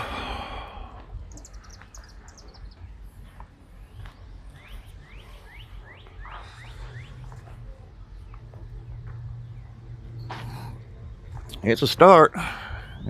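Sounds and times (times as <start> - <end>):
bird chirps: 1.2 - 8.4.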